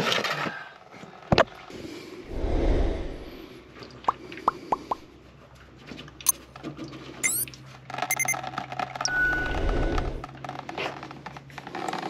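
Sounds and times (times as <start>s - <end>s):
electronic chime: 7.2s - 7.4s, 8.1s - 8.4s.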